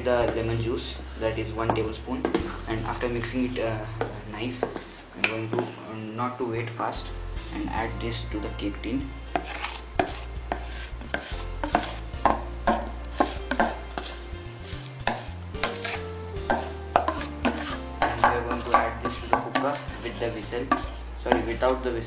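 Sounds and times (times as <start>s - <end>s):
background music with clicking beat: 6.9s - 22.0s.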